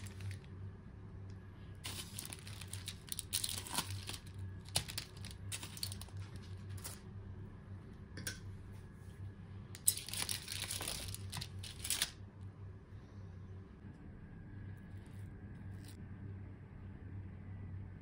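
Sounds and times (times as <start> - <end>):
foil crinkling: 0.0 - 0.5, 1.8 - 7.0, 9.8 - 12.2
tongs scraping and clinking in tray: 1.9 - 7.0, 9.8 - 12.1.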